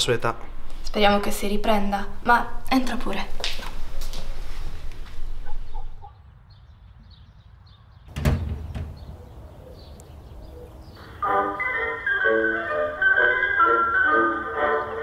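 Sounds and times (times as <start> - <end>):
birds chirping faintly: 4.6 - 12.8
door shutting with heavy thud: 8.1 - 9.2.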